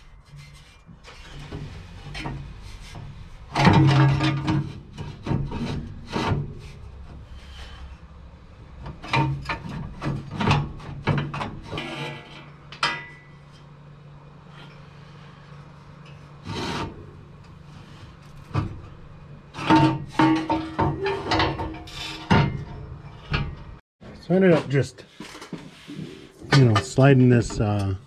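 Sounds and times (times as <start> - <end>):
metal exhaust scraping and clunking: 0.0 - 28.0.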